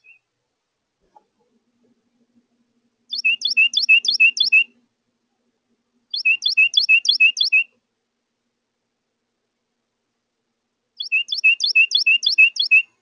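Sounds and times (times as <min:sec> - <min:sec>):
wren singing rolling song: 0:00.0 - 0:00.3, 0:03.0 - 0:04.9, 0:06.0 - 0:07.8, 0:11.0 - 0:13.0.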